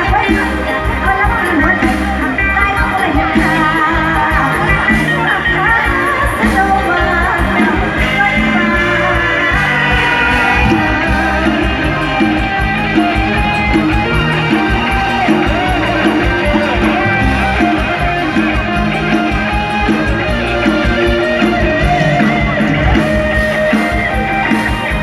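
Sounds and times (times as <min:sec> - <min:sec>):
bass and drum beat: 0:00.0 - 0:25.0
electric guitar: 0:00.0 - 0:25.0
live band music: 0:00.0 - 0:25.0.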